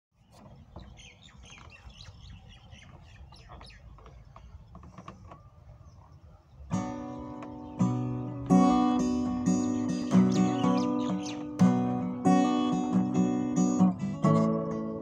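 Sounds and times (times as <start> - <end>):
small birds chirping: 0.1 - 15.0
acoustic guitar chord strummed: 6.8 - 15.0.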